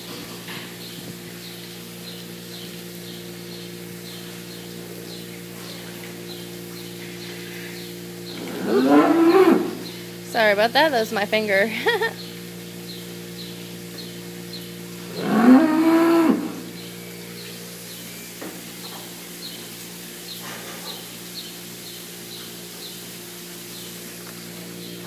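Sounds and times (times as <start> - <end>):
milking equipment humming: 0.0 - 25.0
cow mooing: 8.4 - 10.0, 15.0 - 16.8.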